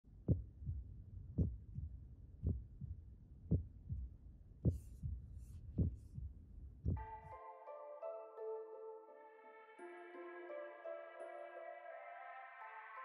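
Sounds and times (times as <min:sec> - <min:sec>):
heartbeat double thump: 0:01.4 - 0:05.2, 0:05.8 - 0:07.0.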